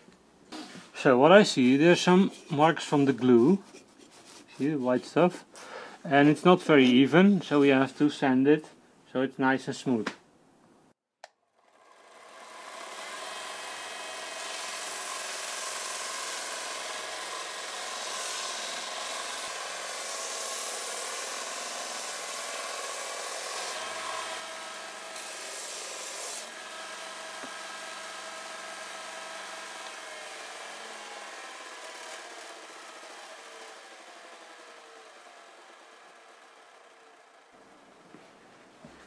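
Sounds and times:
electric sander running: 11.5s - 37.6s.

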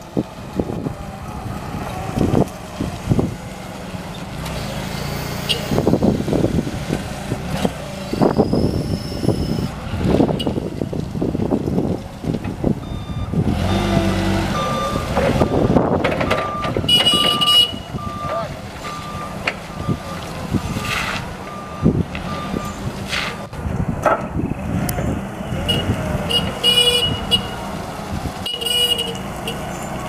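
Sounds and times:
forklift engine drone: 0.0s - 30.0s
reversing beeper: 4.8s - 5.8s, 8.1s - 9.7s, 12.8s - 15.7s, 16.4s - 20.1s.

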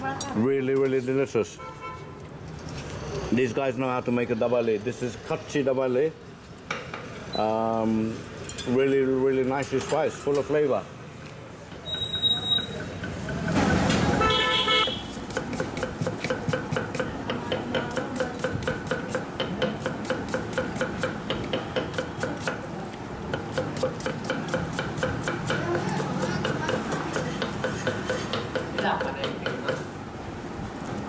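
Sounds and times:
street noise: 0.0s - 31.0s
vehicle horn honking: 1.6s - 2.2s, 14.2s - 15.1s
knife chopping on wooden board: 14.9s - 22.6s, 23.3s - 29.8s.

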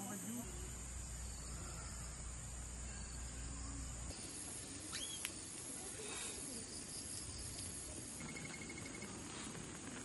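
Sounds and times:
high-pitched insect drone: 0.0s - 9.2s
short bird whistle: 4.9s - 5.2s.

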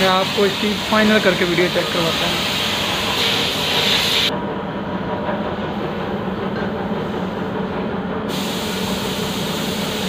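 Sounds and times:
broad hiss: 0.0s - 4.3s, 8.3s - 10.0s.

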